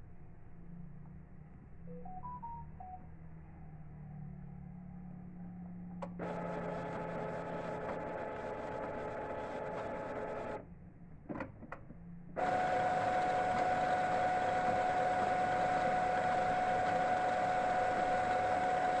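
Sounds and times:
printer motor whine: 6.0s - 10.6s, 12.4s - 19.0s.

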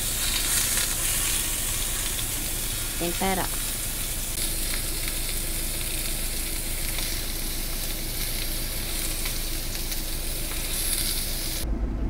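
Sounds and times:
meat sizzling in a pan: 0.0s - 11.6s.

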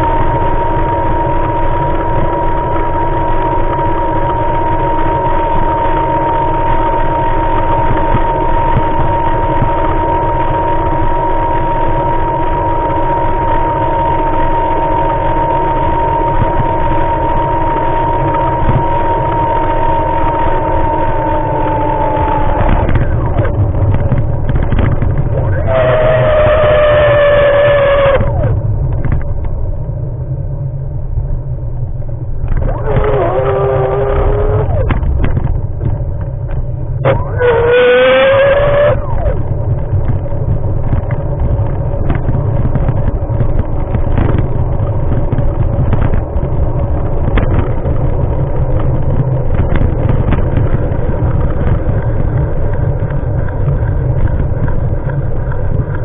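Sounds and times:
high-pitched motor whine: 0.0s - 56.0s
wind rumble on microphone: 0.0s - 56.0s.

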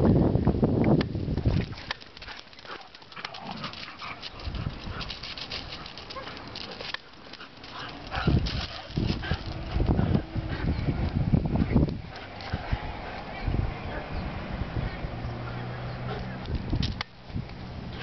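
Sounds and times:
small clicks and crunches: 1.4s - 9.8s.

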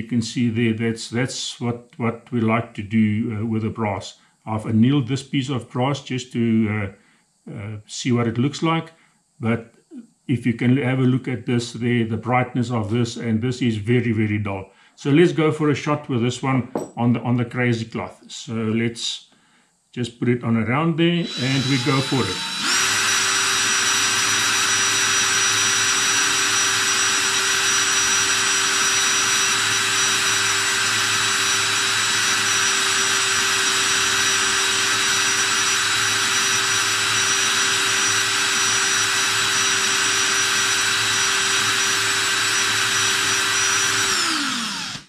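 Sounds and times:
cordless drill motor whine: 21.2s - 45.0s.

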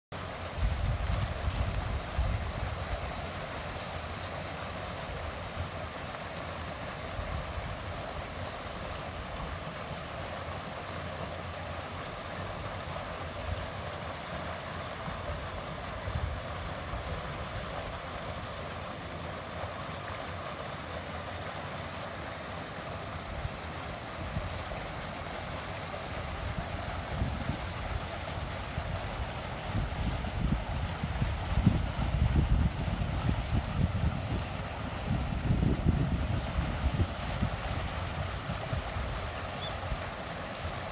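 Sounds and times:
water rushing over weir: 0.2s - 40.9s
wind buffeting microphone: 0.6s - 3.0s, 28.8s - 39.2s.

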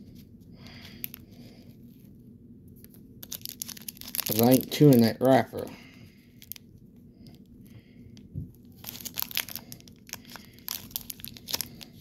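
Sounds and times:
plastic wrapper crinkling and tearing: 3.2s - 5.4s, 6.4s - 6.6s, 8.8s - 12.0s.

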